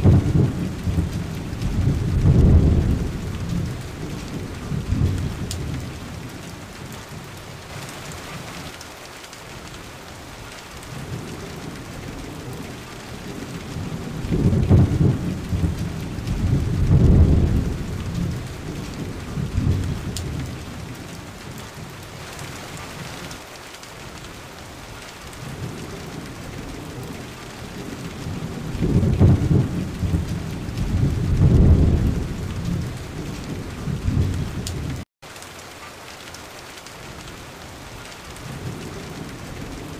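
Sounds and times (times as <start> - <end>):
rolling thunder: 0.0 - 8.2, 10.9 - 23.2, 25.4 - 35.0
steady rain: 0.0 - 39.9.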